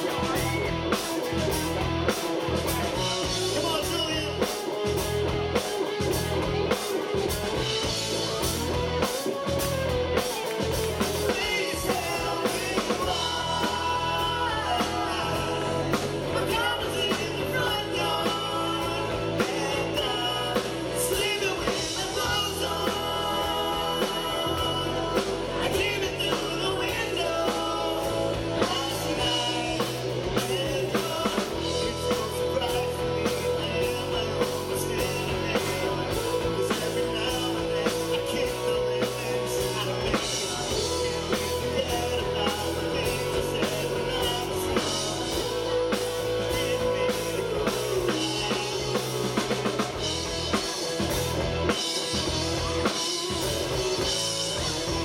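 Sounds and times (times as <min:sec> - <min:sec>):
bass guitar: 0:00.0 - 0:55.0
drum kit beat: 0:00.0 - 0:55.0
electric guitars: 0:00.0 - 0:55.0
person singing: 0:00.0 - 0:55.0.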